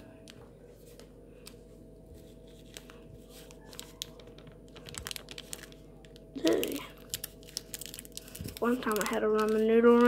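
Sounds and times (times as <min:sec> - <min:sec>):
low room hum: 0:00.0 - 0:10.0
foil packet crinkling: 0:02.2 - 0:10.0.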